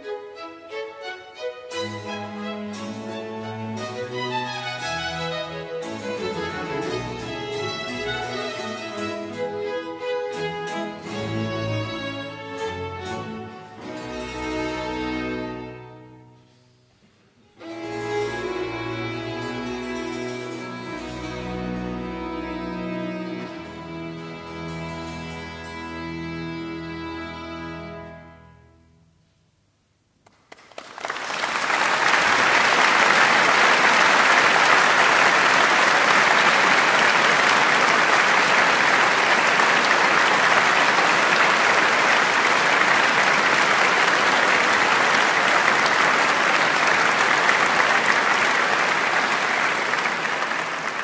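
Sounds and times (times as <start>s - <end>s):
audience applauding: 4.0s - 15.4s, 30.3s - 51.0s.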